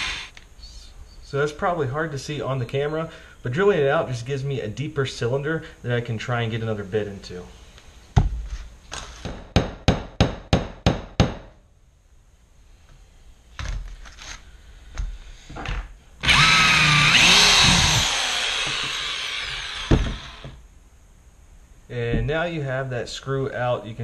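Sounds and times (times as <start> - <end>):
power drill running: 0.0 - 0.3, 16.2 - 20.6
sharp knocks: 19.8 - 20.6.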